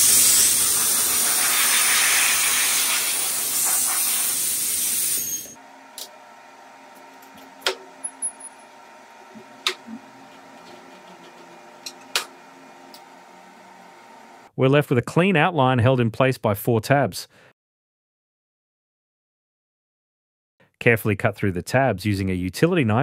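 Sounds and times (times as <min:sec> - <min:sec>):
compressed air gun hissing: 0:00.0 - 0:05.5.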